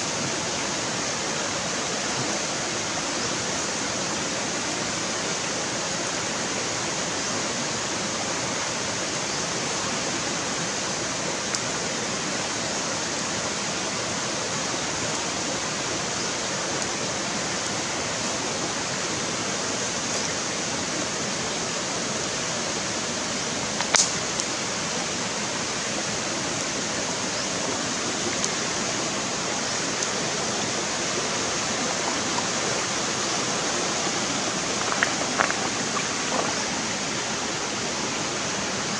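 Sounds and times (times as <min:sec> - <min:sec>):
stream water rushing: 0:00.0 - 0:38.9
sharp click: 0:23.8 - 0:24.2
faint ticks: 0:33.9 - 0:36.6.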